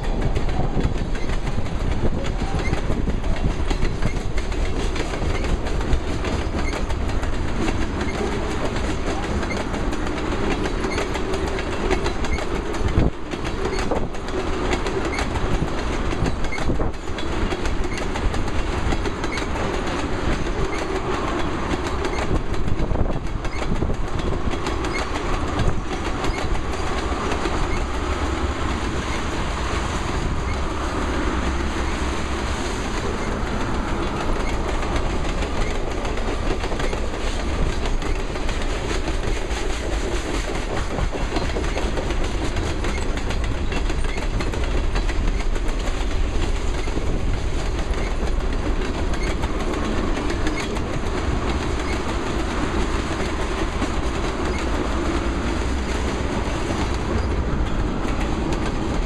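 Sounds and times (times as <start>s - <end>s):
freight train rumbling: 0.0s - 59.0s
wheels clacking over rail joints: 0.0s - 59.0s.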